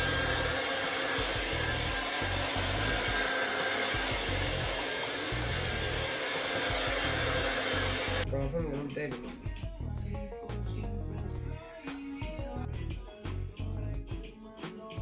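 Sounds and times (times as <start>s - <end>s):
hair dryer running: 0.0s - 8.3s.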